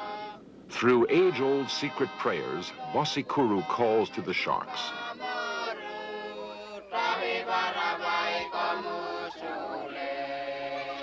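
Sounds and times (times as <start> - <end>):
voices chanting a prayer: 0.0 - 11.0.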